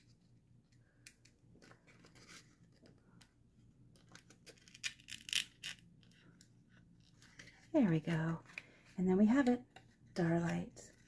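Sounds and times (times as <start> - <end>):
cardstock rustling and crinkling: 1.4 - 8.8.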